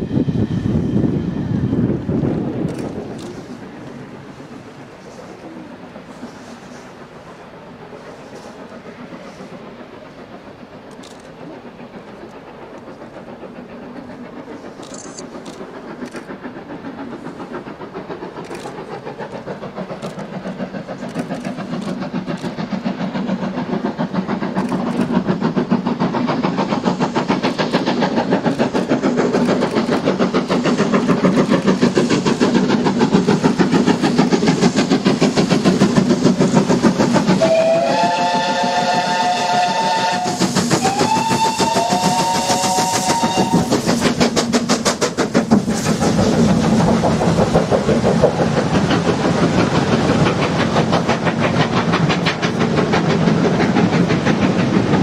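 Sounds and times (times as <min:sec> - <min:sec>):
steam locomotive exhaust beats: 0:00.0 - 0:55.0
steam whistle: 0:37.4 - 0:43.8.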